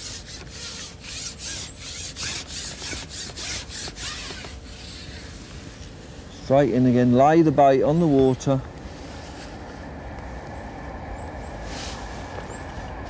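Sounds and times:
fishing pole rubbing over rollers: 0.0 - 7.1.

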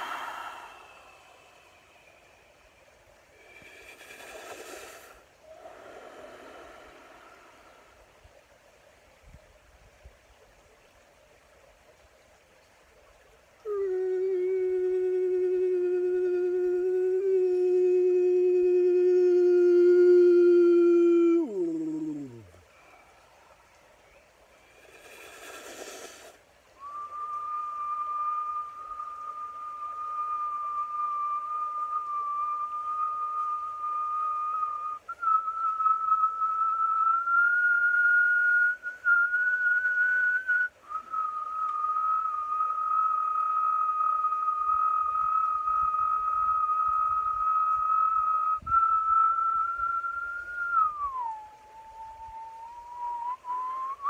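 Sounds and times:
man whistling: 0.0 - 1.6, 26.8 - 54.0
man singing long held note: 13.6 - 22.6.

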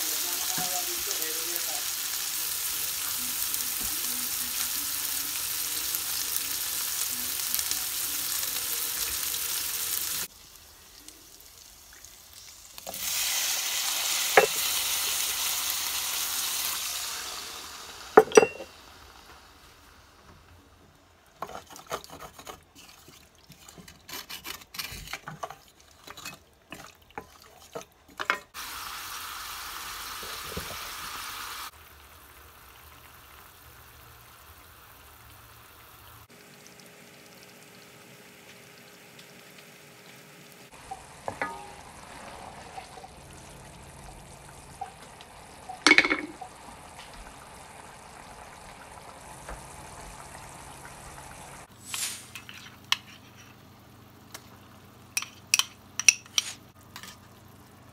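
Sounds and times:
liquid sizzling: 0.0 - 24.4, 25.0 - 57.9
utensil clinking on pan: 18.2 - 18.7, 41.3 - 41.9, 55.2 - 57.2
spoon stirring and scraping pan: 21.4 - 28.5, 52.4 - 53.6, 55.2 - 57.3
sauce simmering: 25.4 - 57.9.

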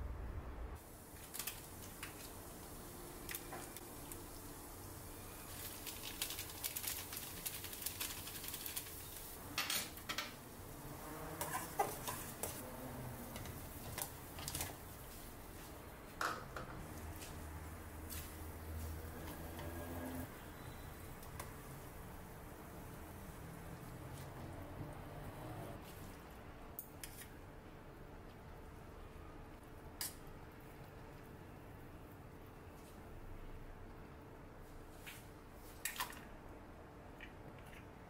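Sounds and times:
water boiling in a pot: 0.8 - 15.8, 16.5 - 26.8
foil packet crinkling: 5.5 - 9.3.

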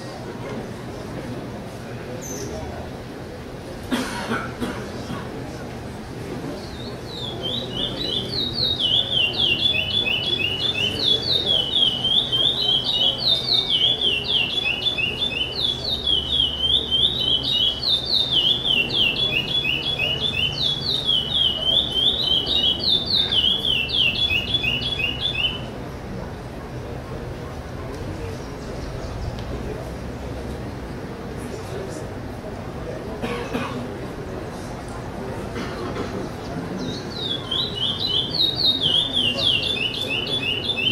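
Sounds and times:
blackbird singing: 6.5 - 25.7, 36.2 - 40.9.

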